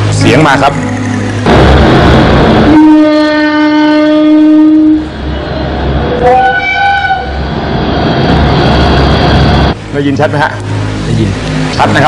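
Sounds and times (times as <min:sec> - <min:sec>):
two-tone locomotive air horn: 0:02.6 - 0:05.5, 0:06.1 - 0:07.4.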